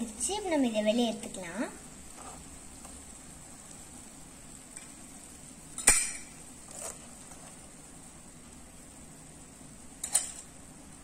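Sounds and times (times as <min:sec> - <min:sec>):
faint sizzle of frying oil: 0:00.0 - 0:11.0
metal spoon clinking: 0:10.0 - 0:10.5.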